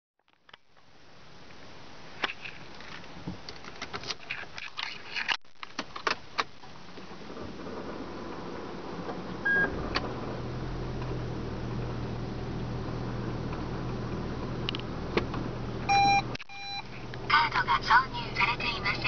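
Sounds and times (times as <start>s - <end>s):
car electrical hum: 0.5s - 19.0s
short beep: 15.9s - 16.9s.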